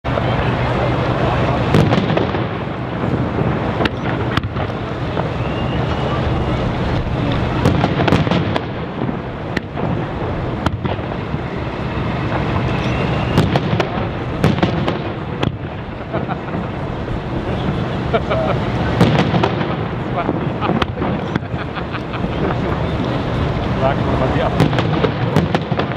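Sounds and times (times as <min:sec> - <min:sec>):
dense rumbling background: 0:00.0 - 0:25.9
fireworks bursting with bangs and booms: 0:00.1 - 0:25.9
faint whistles of rising shells: 0:05.2 - 0:06.3, 0:12.6 - 0:13.6.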